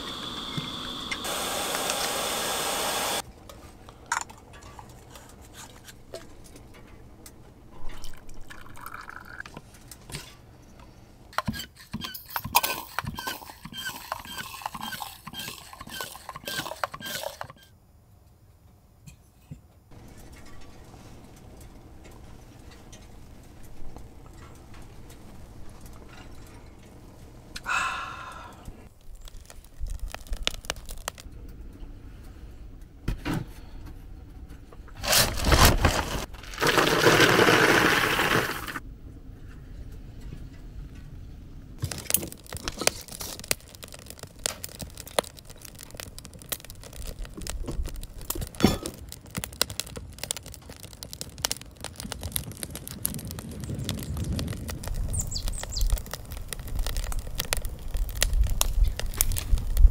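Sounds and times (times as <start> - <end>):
wood fire crackling: 0.0 - 11.5, 19.9 - 33.0, 34.7 - 59.9
wood pieces poured into box: 35.0 - 38.8.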